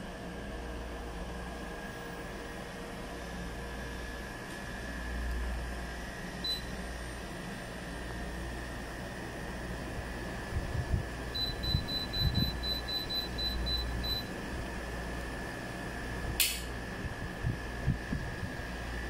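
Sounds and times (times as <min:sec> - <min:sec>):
air conditioner short high beeps: 0:06.4 - 0:07.0, 0:11.2 - 0:14.4
sharp click: 0:16.4 - 0:16.7.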